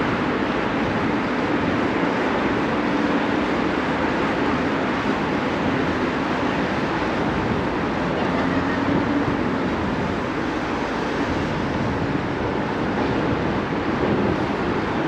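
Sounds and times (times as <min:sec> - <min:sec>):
wind and road noise: 0:00.0 - 0:15.0.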